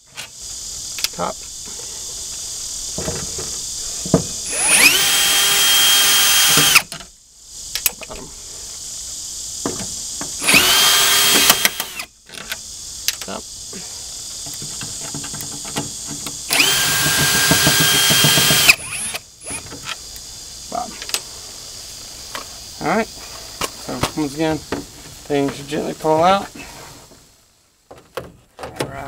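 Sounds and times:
cordless drill whining: 4.4 - 6.9, 10.4 - 12.1, 16.5 - 19.7.

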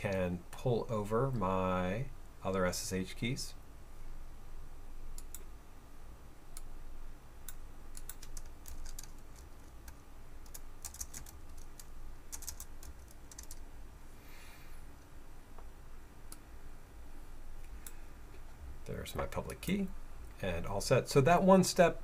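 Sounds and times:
keyboard typing clicks: 7.5 - 13.6.

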